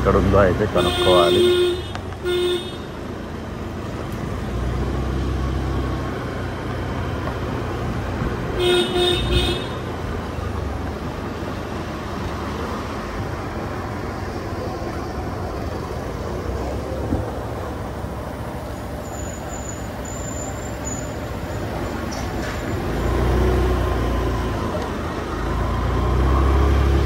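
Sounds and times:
low engine rumble: 0.0s - 27.0s
road traffic noise: 0.0s - 27.0s
vehicle horn tooting: 0.8s - 3.0s, 8.6s - 9.9s.

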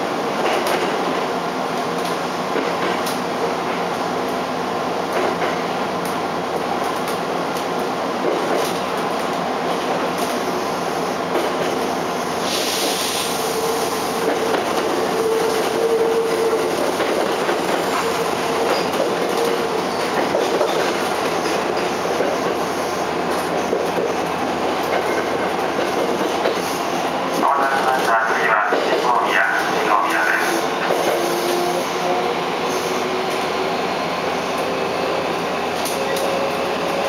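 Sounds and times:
train wheel-on-rail rumble: 0.0s - 37.0s
short hiss: 12.4s - 13.4s.

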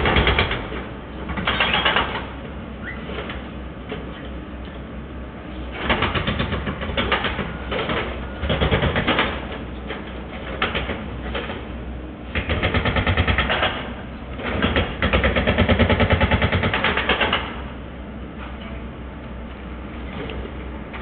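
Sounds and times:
demolition machinery knocking rapidly: 0.0s - 2.3s, 5.7s - 9.6s, 10.4s - 11.7s, 12.3s - 17.7s.

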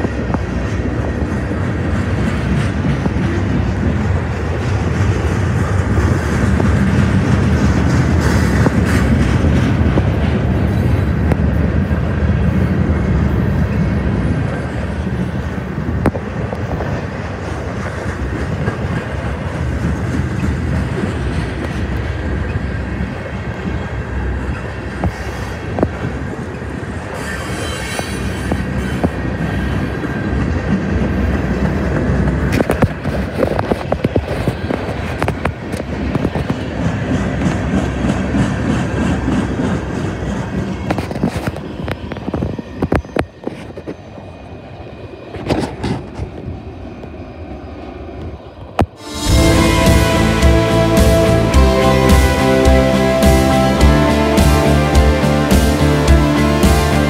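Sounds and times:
freight train wheels rumbling: 0.0s - 57.0s
thin wheel squeal: 27.2s - 29.8s.

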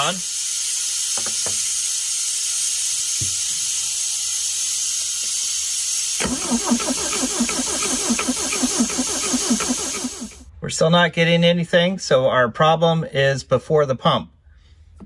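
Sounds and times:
vacuum hissing: 0.0s - 10.5s
engine cranking on starter: 6.2s - 10.5s.

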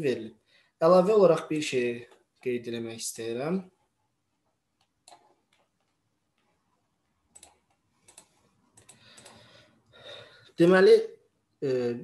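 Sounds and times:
computer mouse clicks: 4.8s - 6.6s, 7.3s - 9.5s.

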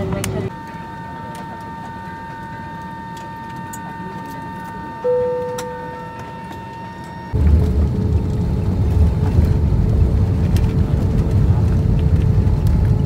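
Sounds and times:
airliner cabin hum: 0.0s - 13.0s
thin high whine: 0.5s - 7.4s
chime tone: 5.0s - 7.2s
loud low rumble: 7.4s - 13.0s.

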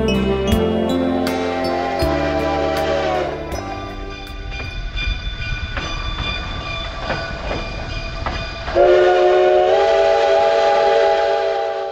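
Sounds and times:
steam whistle chord: 0.0s - 5.0s, 8.8s - 11.9s
steam locomotive rumbling: 0.7s - 11.9s
locomotive clanks: 1.5s - 8.8s.

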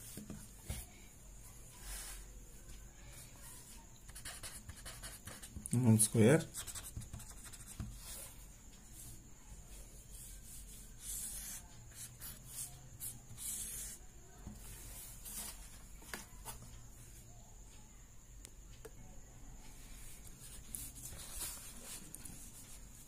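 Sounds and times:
pen scratching on paper: 4.1s - 5.6s, 6.5s - 8.2s, 10.2s - 14.0s.

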